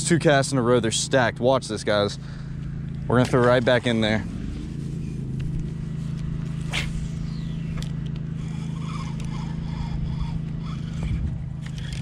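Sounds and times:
low motor hum: 0.0s - 12.0s
fishing rod cast swish: 6.5s - 8.6s.

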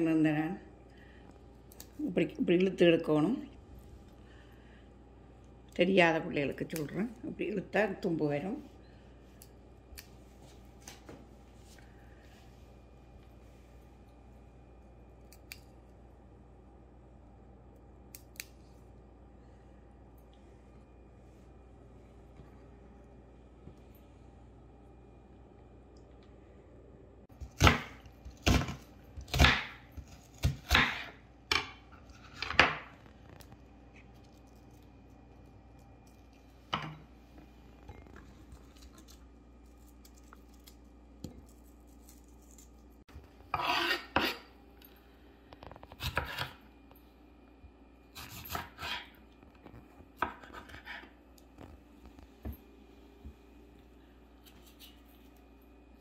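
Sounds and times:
knife cutting on wooden board: 43.5s - 44.4s.

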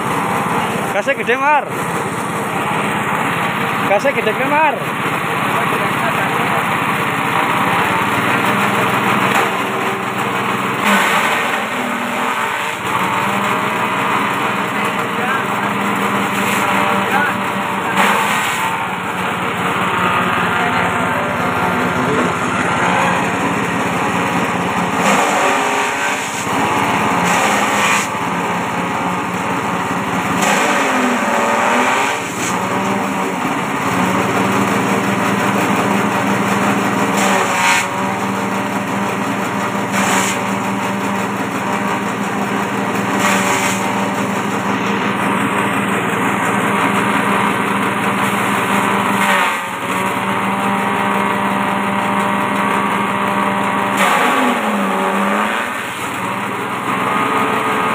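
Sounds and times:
grass shredding in cutter: 0.0s - 57.9s
small petrol engine running: 0.0s - 57.9s.

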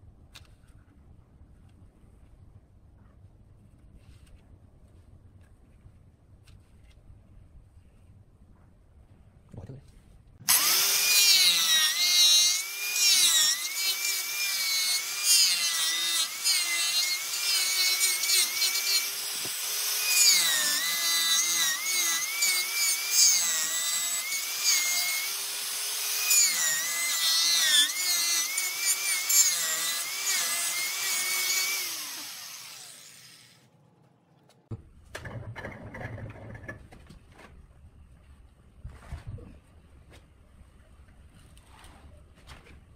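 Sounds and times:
irregular faint noises: 0.0s - 10.4s.

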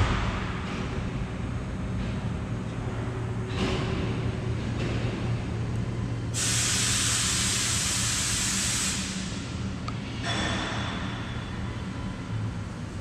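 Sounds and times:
loud hiss: 6.4s - 9.4s.

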